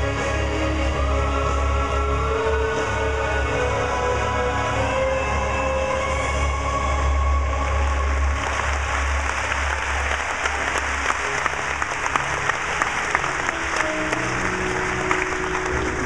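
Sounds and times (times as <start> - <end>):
steady music: 0.0 - 16.0
audience applauding: 7.6 - 16.0.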